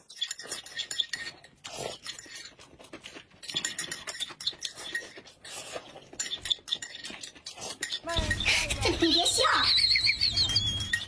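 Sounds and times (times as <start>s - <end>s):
wet chewing and mouth smacking: 0.0s - 8.7s.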